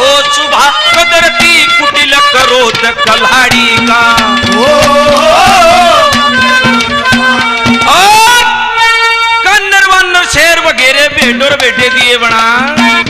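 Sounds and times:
harmonium holding notes: 0:00.0 - 0:13.0
hand drum strokes: 0:00.9 - 0:08.3.

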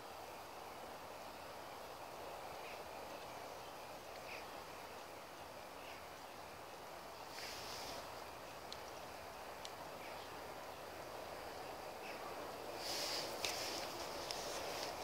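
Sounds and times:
outdoor background noise: 0:00.0 - 0:15.0
faint bird chirps: 0:01.7 - 0:06.5
brief hiss: 0:07.3 - 0:08.1, 0:12.8 - 0:15.0.

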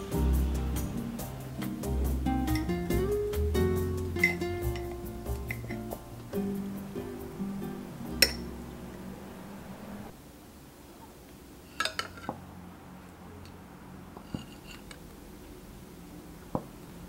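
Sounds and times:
metal spoon clinking on glass jar: 0:04.2 - 0:04.9, 0:08.2 - 0:08.4.

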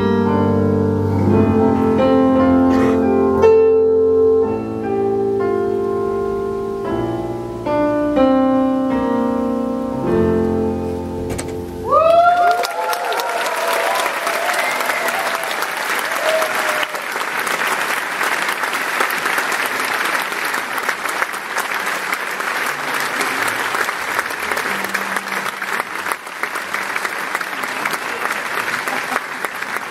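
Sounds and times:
people shouting and whooping: 0:11.8 - 0:17.1
audience applauding: 0:11.9 - 0:29.9.

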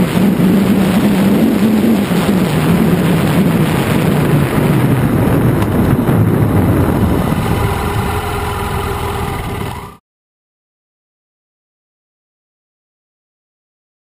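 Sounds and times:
motorcycle engine running: 0:00.0 - 0:10.0
wind noise on microphone: 0:00.0 - 0:10.0.

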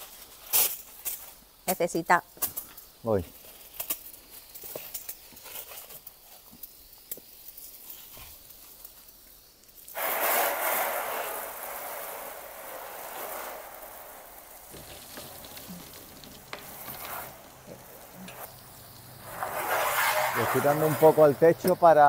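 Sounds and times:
hose water spraying onto roof: 0:00.0 - 0:22.0.

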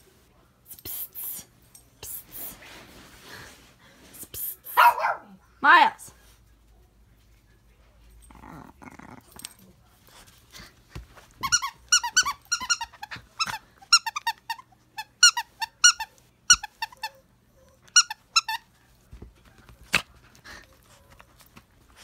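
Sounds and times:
rubber squeaky toy squeaking: 0:11.4 - 0:17.2, 0:17.8 - 0:18.7.

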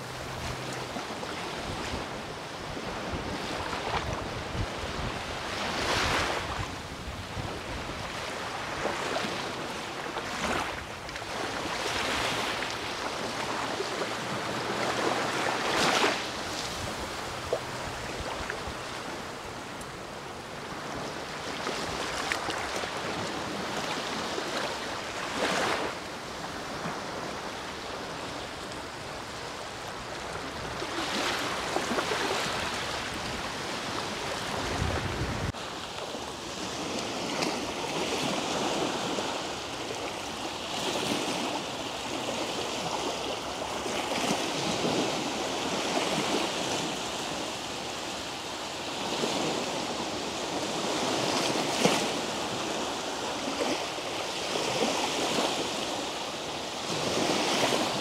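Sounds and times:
wind rumble on microphone: 0:00.0 - 0:35.7
small waves breaking on shore: 0:00.0 - 0:58.0.

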